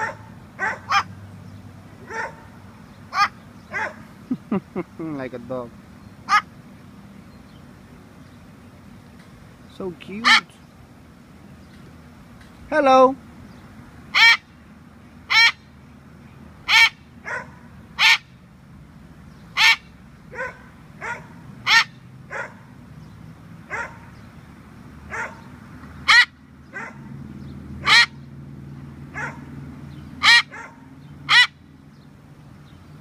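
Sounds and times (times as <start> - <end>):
cockatoo barking like a dog: 0.0 - 1.2, 2.0 - 4.1, 6.3 - 6.5, 14.1 - 14.4, 15.3 - 15.6, 16.7 - 18.3, 19.6 - 22.7, 23.7 - 24.2, 25.1 - 27.2, 27.8 - 28.2, 29.1 - 29.6, 30.2 - 31.6.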